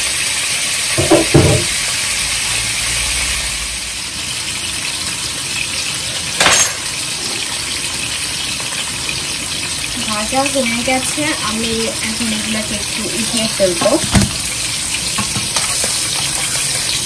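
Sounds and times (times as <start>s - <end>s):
fish sizzling in hot oil: 0.0s - 17.0s
sharp knock: 1.0s - 1.7s.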